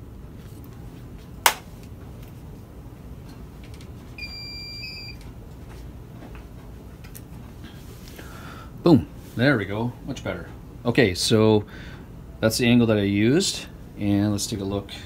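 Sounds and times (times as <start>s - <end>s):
x-ray machine electronic beep: 4.2s - 5.2s.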